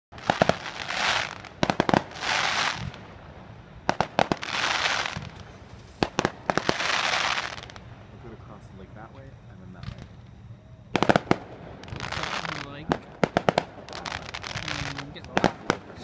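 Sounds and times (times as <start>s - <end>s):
crackling hiss of fireworks: 0.1s - 16.0s
fireworks bangs: 0.1s - 16.0s.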